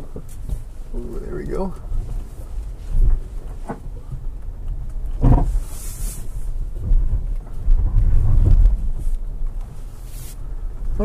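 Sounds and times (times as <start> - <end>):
car engine low rumble: 0.0 - 11.0
vehicle knocks and jolts: 5.1 - 5.7, 6.6 - 9.5.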